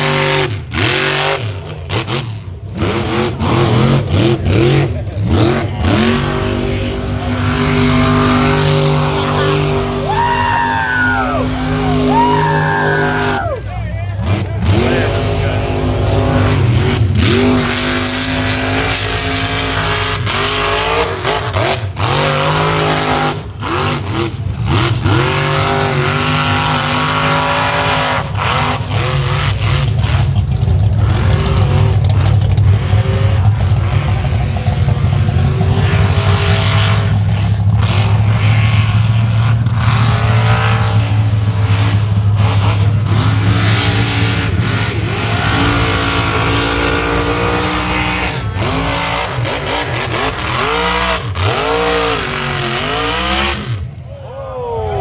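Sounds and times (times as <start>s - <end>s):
truck engine revving hard: 0.0s - 54.1s.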